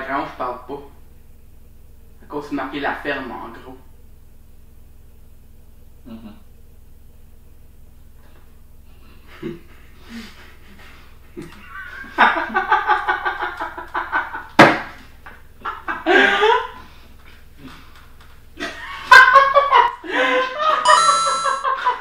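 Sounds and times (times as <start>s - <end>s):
man laughing hard: 9.3s - 10.5s, 11.4s - 14.6s, 15.6s - 16.9s, 18.6s - 22.0s
sharp slap: 14.6s - 15.0s.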